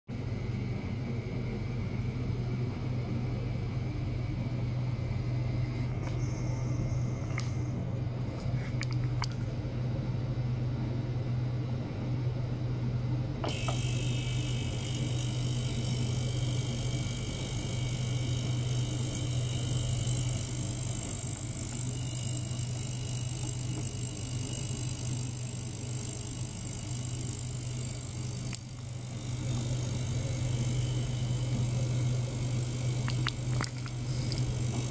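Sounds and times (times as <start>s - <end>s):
ultrasonic cleaner humming: 13.4s - 34.9s.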